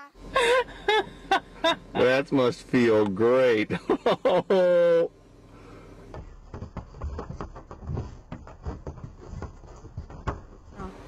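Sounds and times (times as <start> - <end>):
goat hooves clattering on wood: 6.1 - 10.9.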